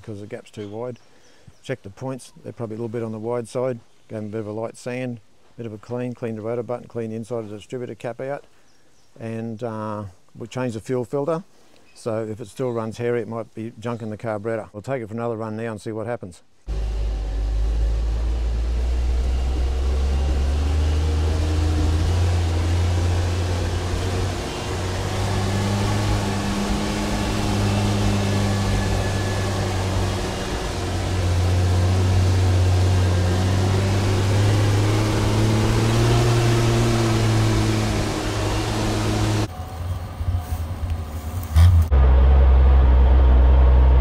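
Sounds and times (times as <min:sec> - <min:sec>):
truck engine while driving: 0:16.7 - 0:44.0.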